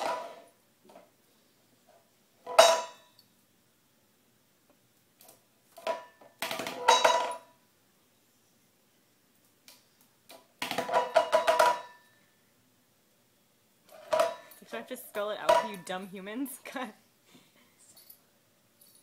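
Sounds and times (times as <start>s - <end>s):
metal bowl clattering on tile: 0.0s - 0.5s, 2.4s - 3.2s, 5.8s - 7.6s, 10.6s - 12.2s, 13.9s - 14.7s, 15.4s - 16.0s.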